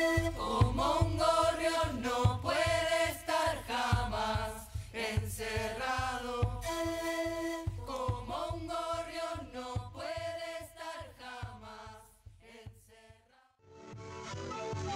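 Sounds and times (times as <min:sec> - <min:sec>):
panpipe ensemble melody: 0:00.0 - 0:01.7, 0:06.4 - 0:08.9
bass drum beat: 0:00.0 - 0:12.9.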